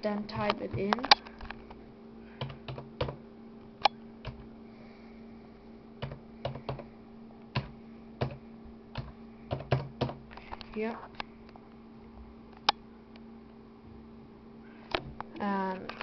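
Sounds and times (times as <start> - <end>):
steady low hum: 0.0 - 16.0
keyboard keys tapping: 9.0 - 10.2.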